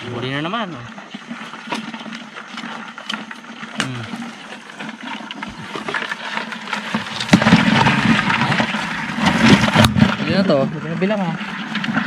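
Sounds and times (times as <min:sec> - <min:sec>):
bamboo knocking and scraping: 0:01.6 - 0:10.4.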